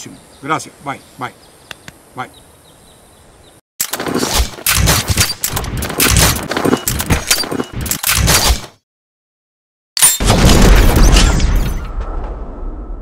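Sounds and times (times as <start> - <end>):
rapid gunshots: 3.9 - 8.8.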